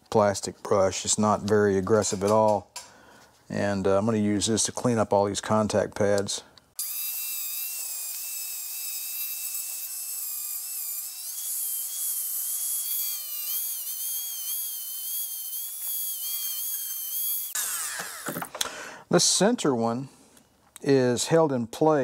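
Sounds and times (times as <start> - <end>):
rotary tool whining: 6.8 - 18.6.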